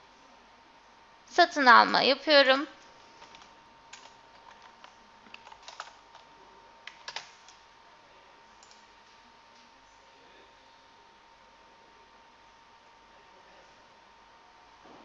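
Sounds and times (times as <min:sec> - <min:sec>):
faint steady hum: 0:00.0 - 0:15.0
keyboard typing: 0:03.2 - 0:07.6, 0:08.6 - 0:08.8.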